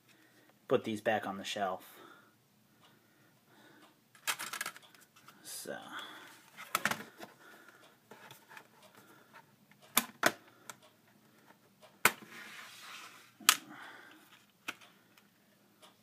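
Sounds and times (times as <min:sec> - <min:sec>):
plastic cd case clicks: 0:06.6 - 0:07.2, 0:09.9 - 0:10.4.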